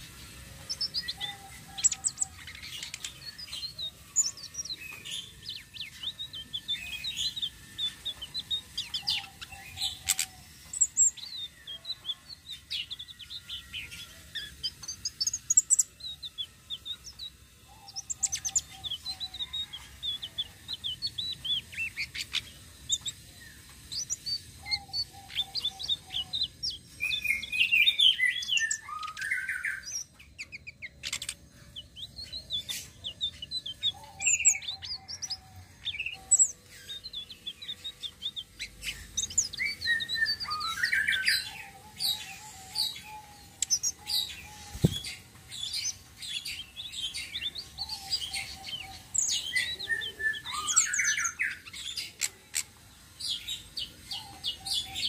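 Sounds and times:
bird song chirps and trills: 0.0s - 55.0s.

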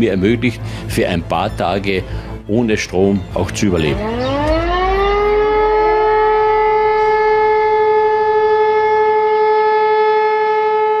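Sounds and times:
siren steady loud tone: 3.8s - 11.0s.

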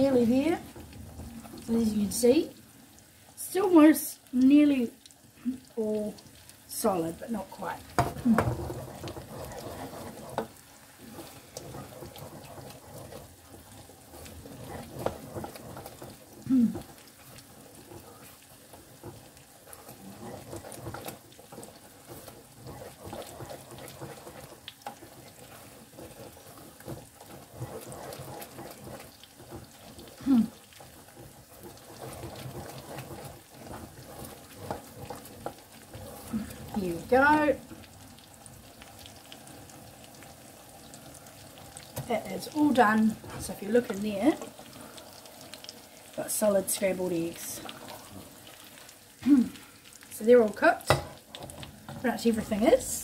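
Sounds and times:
wooden spoon scraping saucepan: 0.0s - 2.4s, 6.8s - 49.1s, 50.2s - 53.0s
eggs sizzling: 0.0s - 53.0s.

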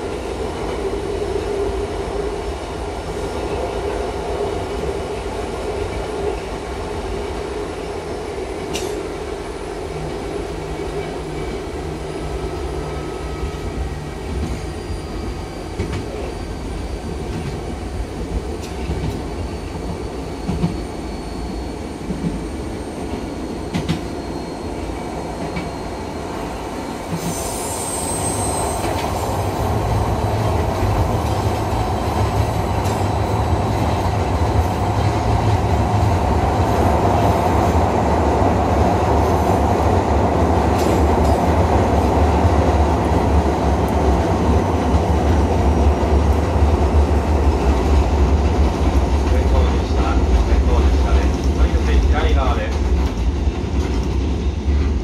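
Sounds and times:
brief high squeal: 12.4s - 17.8s, 19.5s - 26.2s, 27.2s - 29.1s.

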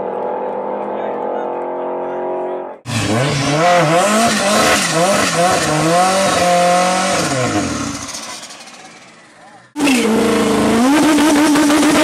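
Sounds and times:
car engine droning: 0.0s - 12.0s
car engine revving: 1.6s - 12.0s.

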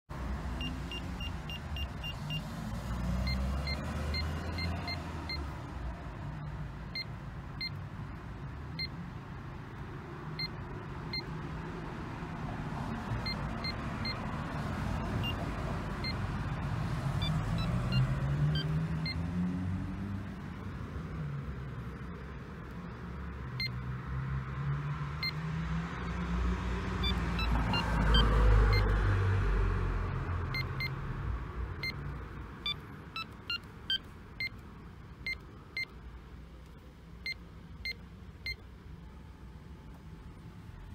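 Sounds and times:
keypad beeps: 0.6s - 2.5s, 3.2s - 5.4s, 10.4s - 11.3s, 13.2s - 14.2s, 15.0s - 15.4s, 17.2s - 19.2s, 27.0s - 28.9s, 30.5s - 31.0s, 31.8s - 32.0s, 32.6s - 34.6s.

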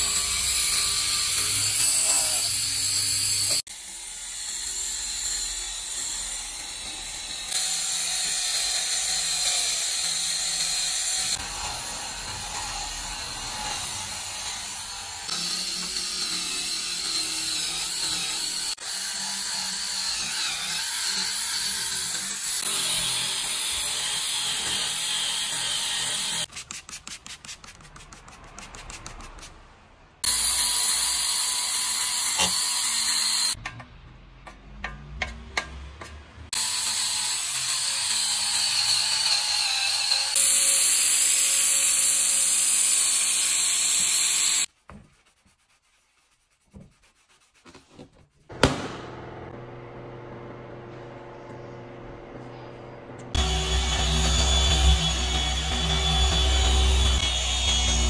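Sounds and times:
rotary polisher whining: 53.2s - 58.0s.

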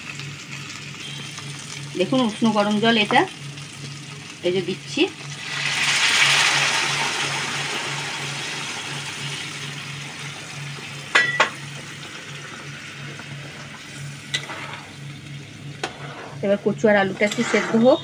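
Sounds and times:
water hissing in hot pan: 0.0s - 11.0s.

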